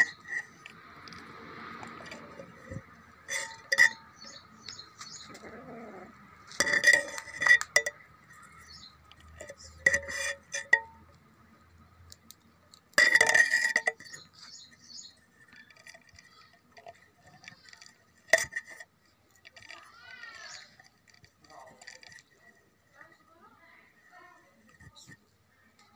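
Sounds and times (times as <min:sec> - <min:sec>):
tableware clinking: 0:02.0 - 0:11.1, 0:12.9 - 0:14.7.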